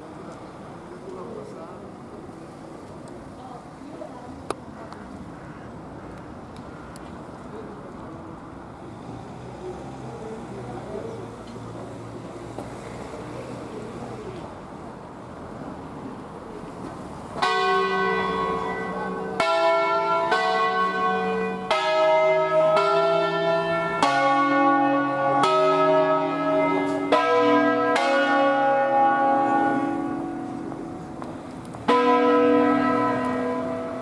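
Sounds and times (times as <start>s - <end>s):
church bells ringing: 17.4s - 34.0s.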